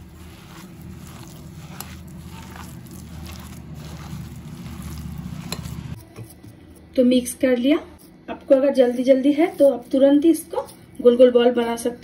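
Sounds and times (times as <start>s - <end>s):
wet squishing of hand mixing: 0.0s - 6.0s
low steady hum: 0.0s - 12.0s.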